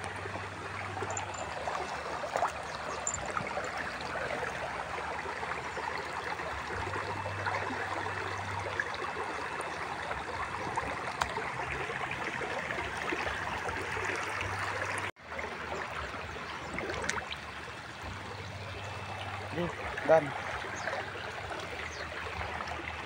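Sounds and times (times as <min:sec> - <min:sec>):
stream flowing over stones: 0:00.0 - 0:23.0.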